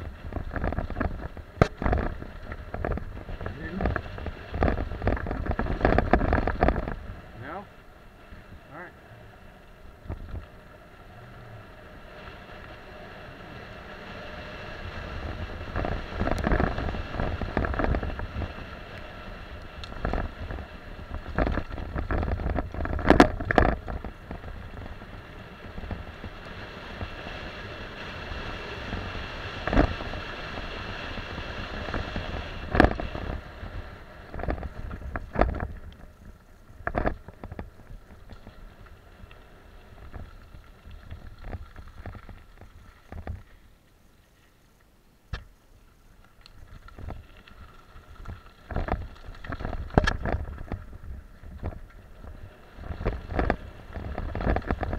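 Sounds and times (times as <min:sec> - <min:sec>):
bike clanking and rattling: 0:00.0 - 0:07.1, 0:15.2 - 0:19.2, 0:19.8 - 0:27.2, 0:28.9 - 0:38.9, 0:46.6 - 0:54.9
bike tyres crunching on gravel: 0:00.0 - 0:54.9
wind rushing over microphone: 0:12.2 - 0:38.1.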